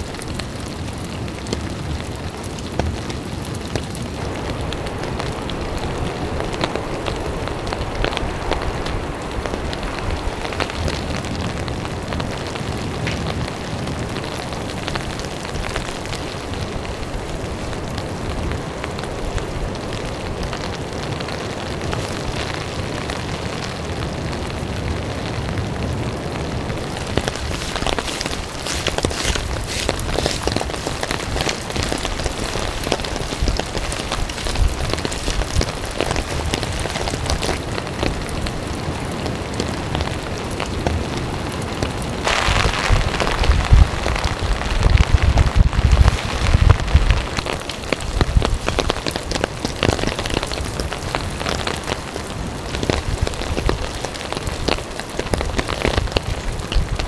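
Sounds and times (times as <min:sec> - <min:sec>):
steady rain: 0:00.0 - 0:57.0
raindrop taps: 0:26.7 - 0:38.6, 0:41.8 - 0:52.1.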